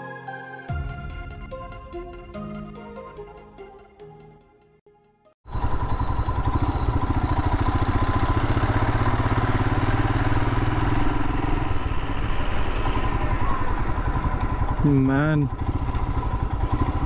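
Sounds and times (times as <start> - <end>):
motorcycle engine running: 5.5 - 17.0.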